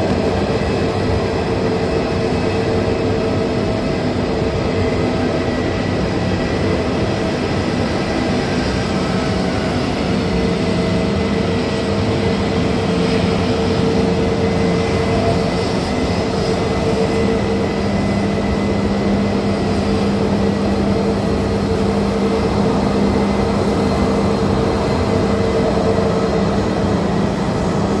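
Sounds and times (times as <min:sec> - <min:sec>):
jet engines idling: 0:00.0 - 0:28.0.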